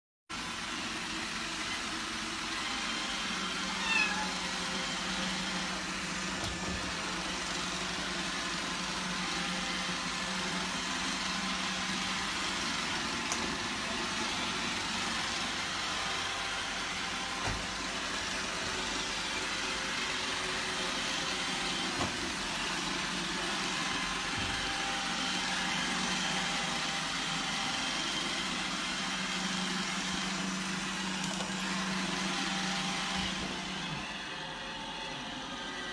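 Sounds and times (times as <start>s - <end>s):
robot vacuum cleaner running: 0.4s - 35.9s
kitten meowing: 3.7s - 4.4s.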